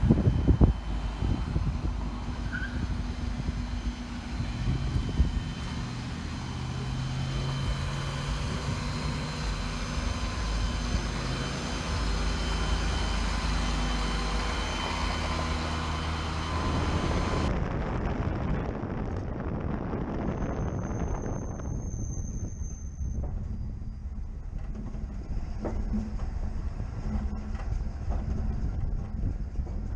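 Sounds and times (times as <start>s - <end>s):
vehicle engine idling: 0.0s - 17.5s
wind and road noise: 0.0s - 29.9s.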